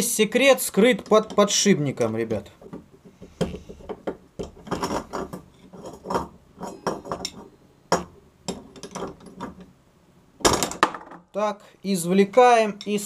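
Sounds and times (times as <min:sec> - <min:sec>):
metal spanners clinking and scraping: 0:04.4 - 0:07.5.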